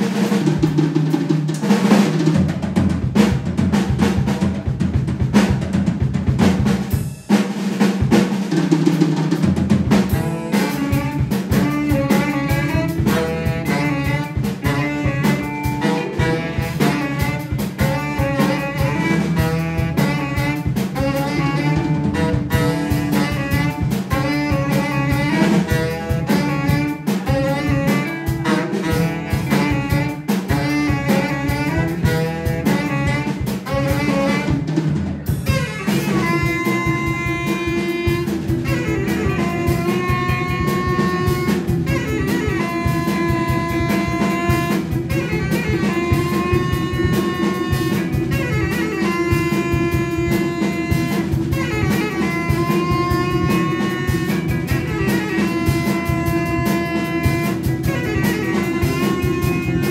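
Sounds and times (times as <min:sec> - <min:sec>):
tenor saxophone: 0:00.0 - 0:02.4, 0:09.4 - 0:59.9
drum kit fills: 0:00.0 - 0:59.9
jazz band playing: 0:00.0 - 0:59.9
electric bass line: 0:09.3 - 0:59.9.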